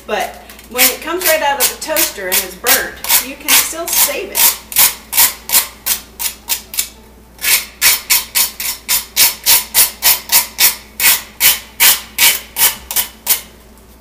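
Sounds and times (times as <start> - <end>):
butter knife scraping toast: 1.2 - 3.3.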